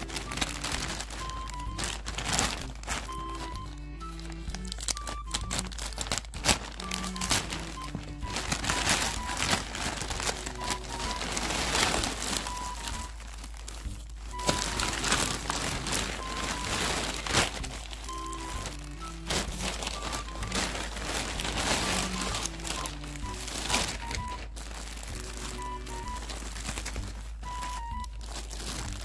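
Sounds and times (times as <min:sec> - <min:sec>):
background music with simple melody: 0:00.0 - 0:29.0
plastic bag crinkling: 0:00.0 - 0:29.0.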